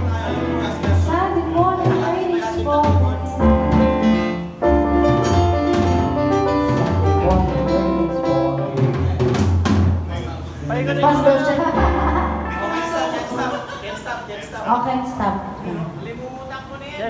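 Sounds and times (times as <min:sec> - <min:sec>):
live band playing: 0:00.0 - 0:13.9
steady bass notes: 0:02.6 - 0:09.9.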